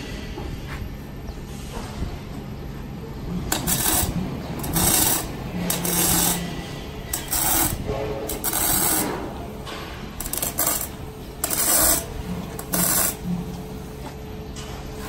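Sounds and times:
electric arc torch hissing: 3.5s - 9.3s, 10.2s - 13.2s.

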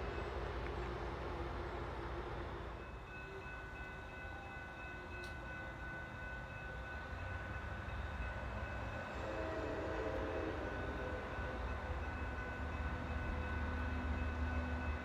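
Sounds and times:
diesel locomotive engine rumble: 0.0s - 15.0s
distant train horn: 8.8s - 15.0s.

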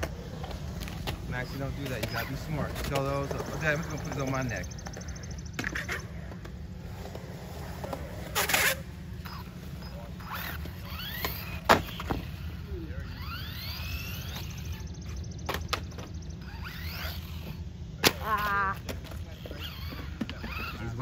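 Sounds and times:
electric motor whining: 8.4s - 17.7s.

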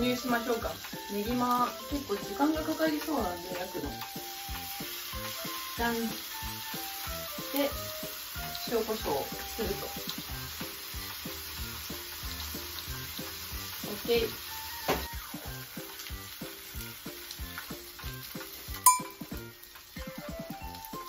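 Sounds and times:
food sizzling on grill plate: 0.0s - 21.0s.

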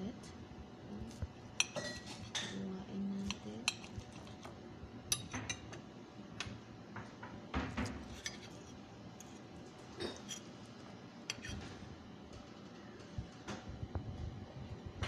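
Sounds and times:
knife and fork clinking on plate: 1.6s - 2.6s.

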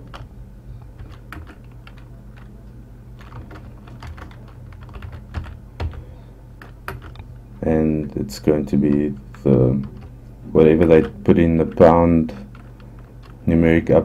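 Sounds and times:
low electrical hum: 0.0s - 14.0s
keyboard typing clicks: 6.6s - 7.3s.

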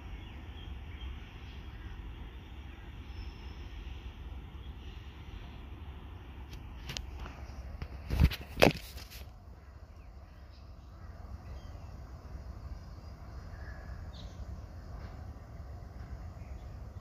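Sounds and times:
distant freight train rumble: 0.0s - 8.0s, 9.3s - 17.0s
faint bird chirps: 9.6s - 15.2s.

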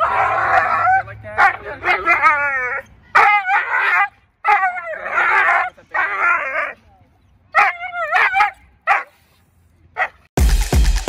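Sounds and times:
dog barking yelping and whining: 0.0s - 6.8s, 7.6s - 9.2s.

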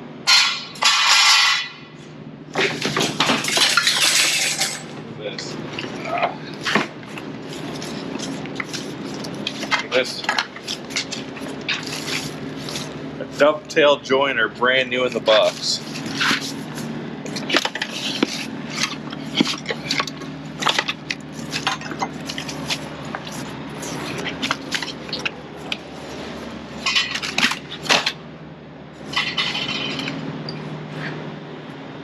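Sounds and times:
steady low hum: 0.0s - 32.0s
objects scraping: 15.2s - 28.0s.

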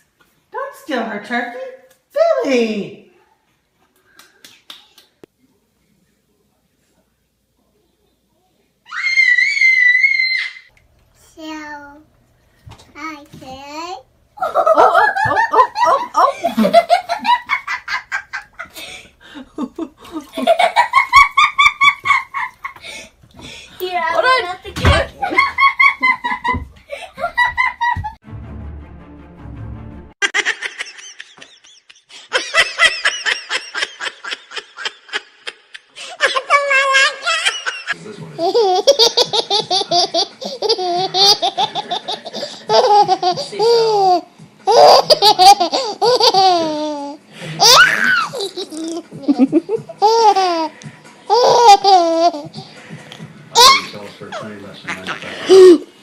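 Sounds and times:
baby laughing: 30.2s - 52.6s, 53.5s - 55.9s.

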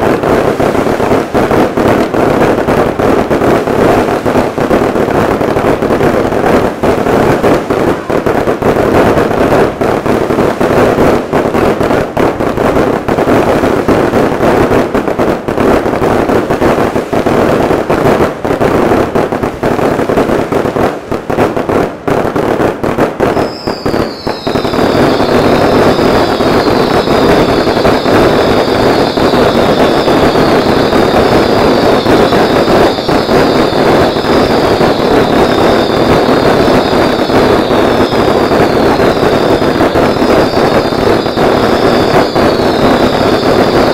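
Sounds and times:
fireworks bangs and crackling: 0.0s - 43.9s
whistling fireworks: 0.0s - 43.9s.

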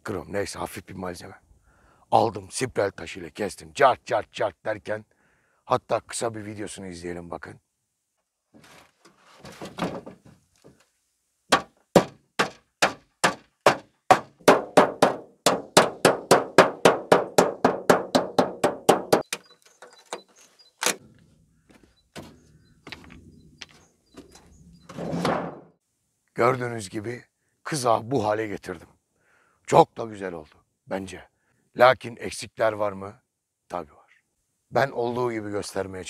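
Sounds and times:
hammer striking metal sheet: 12.0s - 19.2s.

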